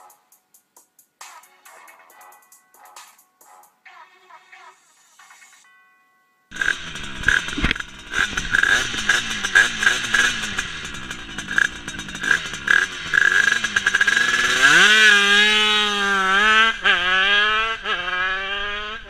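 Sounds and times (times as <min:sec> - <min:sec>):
motorcycle engine revving: 0:06.5 - 0:19.0.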